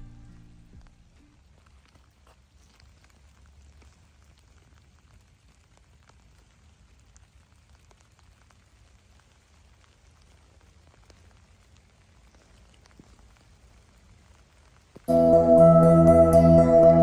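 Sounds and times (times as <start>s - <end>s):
low rumble: 0.0s - 1.2s
light rain drops ticking: 0.0s - 16.1s
soft rain hiss: 0.0s - 17.0s.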